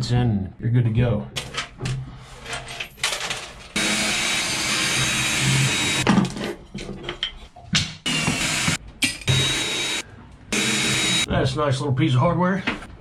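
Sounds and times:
cordless drill running: 3.8 - 6.0, 8.1 - 11.3.

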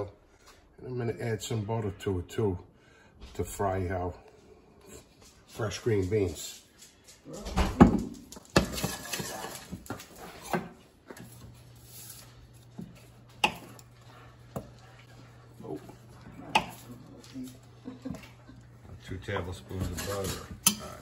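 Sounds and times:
clicks and knocks in kitchen: 6.8 - 11.3.

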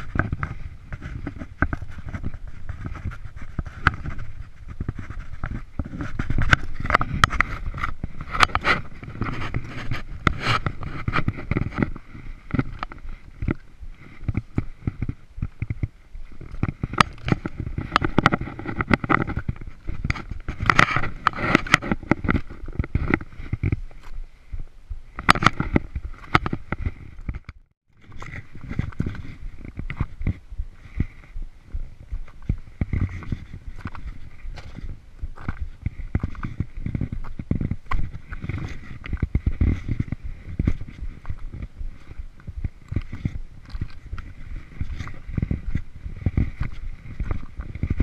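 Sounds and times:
low wind rumble: 0.0 - 48.0
hands and boots scuffing on rock: 31.8 - 48.0.

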